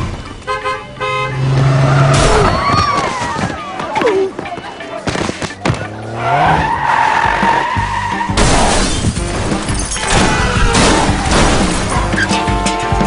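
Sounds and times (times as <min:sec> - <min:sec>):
vehicles crashing: 0:00.0 - 0:13.0
car tyres screeching: 0:00.1 - 0:03.8, 0:04.8 - 0:09.0.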